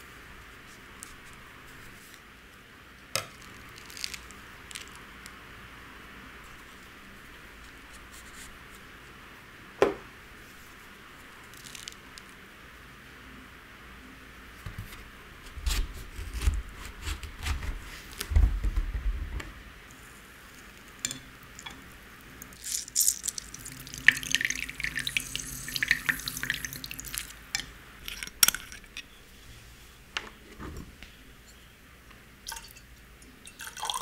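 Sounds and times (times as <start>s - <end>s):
liquid trickling and dripping: 22.4s - 27.4s.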